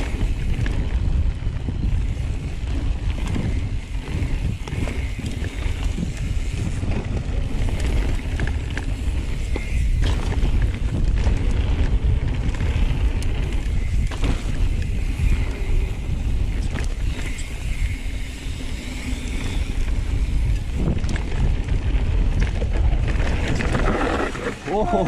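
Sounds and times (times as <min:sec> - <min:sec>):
bike knocks and rattles: 0:00.0 - 0:24.6
wind rushing over microphone: 0:00.0 - 0:25.0
tyres rolling over dirt: 0:16.5 - 0:25.0.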